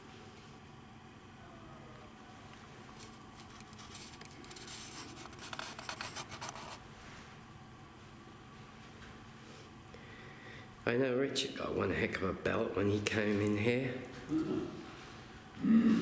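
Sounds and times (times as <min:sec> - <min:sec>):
scratching and rustling close to microphone: 0:02.9 - 0:07.3.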